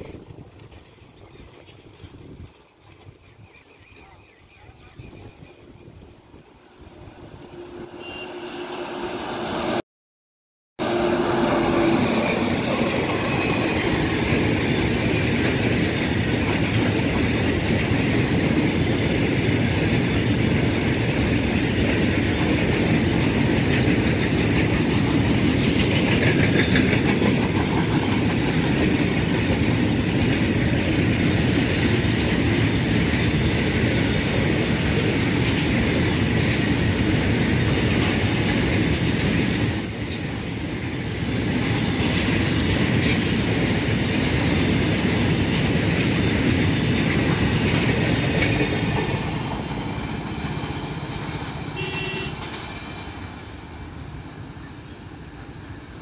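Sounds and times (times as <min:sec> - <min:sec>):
freight train rumbling past: 0:04.2 - 0:09.8, 0:10.8 - 0:56.0
wheels clattering on rails: 0:11.7 - 0:53.8.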